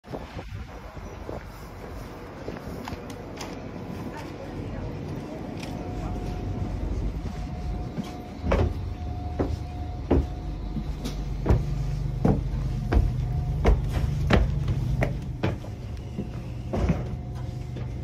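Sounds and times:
steady low hum: 3.4 - 18.0
footsteps on stairs: 5.1 - 18.0.

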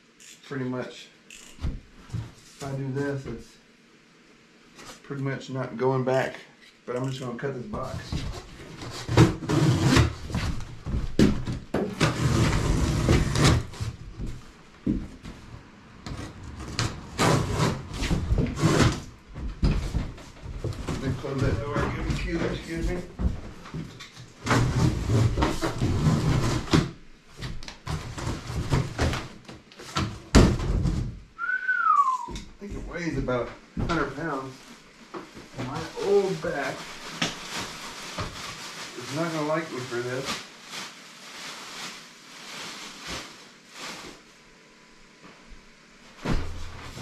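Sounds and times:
cardboard scraping and tearing: 8.2 - 10.7, 11.8 - 14.0, 16.1 - 19.1
cardboard box scraping and rustling: 12.0 - 14.0.

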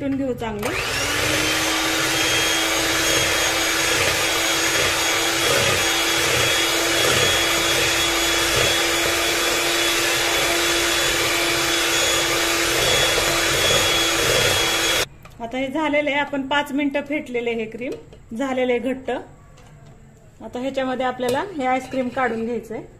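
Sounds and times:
beaters whipping cream in a bowl: 0.6 - 15.1
electric hand mixer whining: 0.6 - 15.1.

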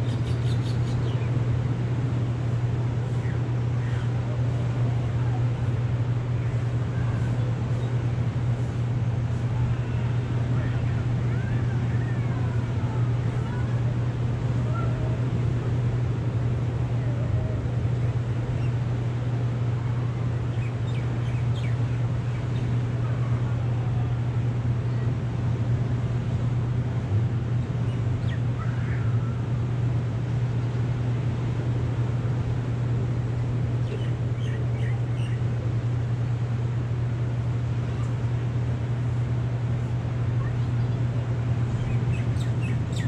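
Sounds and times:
constant low hum: 0.0 - 43.0.

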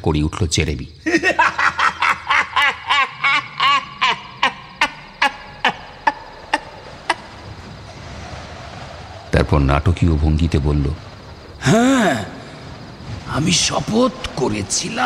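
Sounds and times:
man laughing theatrically: 1.0 - 7.2.

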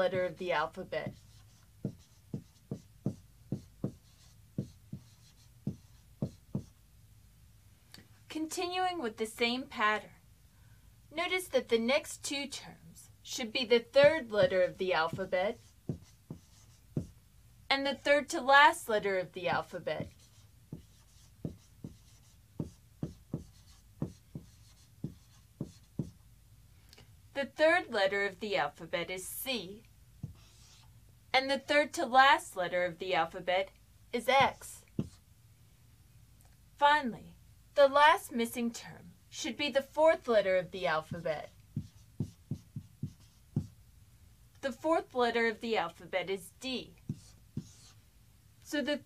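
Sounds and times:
marker writing on whiteboard: 0.0 - 6.8, 13.7 - 17.2, 18.9 - 26.2, 30.2 - 30.9, 34.2 - 35.2, 41.0 - 43.8, 47.0 - 48.0.

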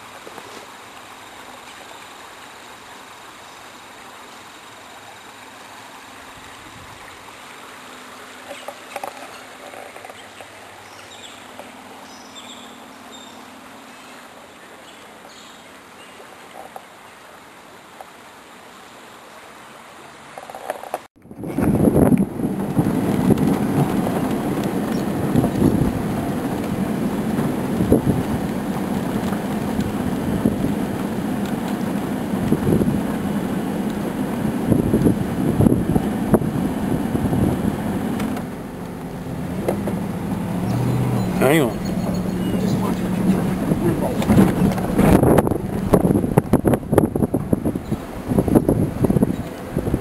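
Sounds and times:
creek flowing: 0.0 - 50.0
wind buffeting microphone: 21.2 - 50.0.

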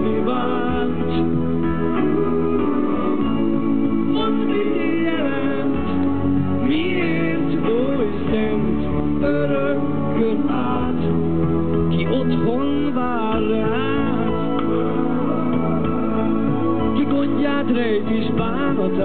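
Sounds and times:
live band playing a ballad: 0.0 - 19.0.

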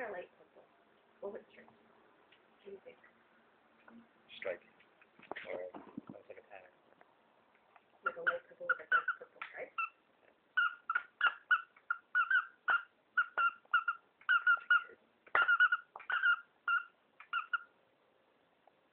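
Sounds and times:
puppy squeaky whimpers: 8.1 - 10.0, 10.6 - 17.7.

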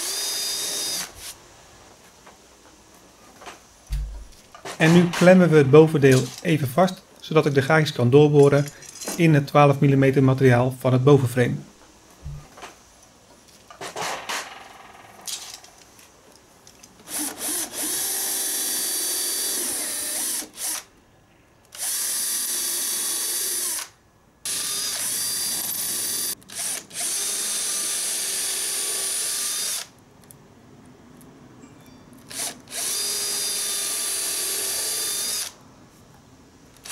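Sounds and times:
cordless drill boring wood: 0.0 - 1.3, 17.1 - 20.9, 21.8 - 23.9, 24.5 - 29.9, 32.3 - 35.6.

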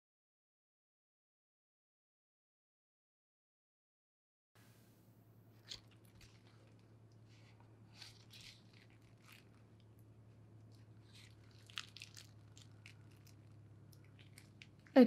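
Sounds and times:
low room hum: 4.6 - 15.0.

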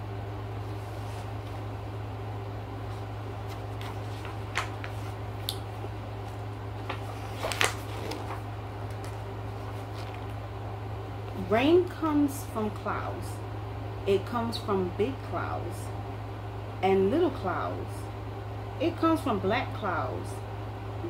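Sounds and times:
soft rustles: 0.6 - 1.7, 2.8 - 5.2, 6.2 - 10.4.

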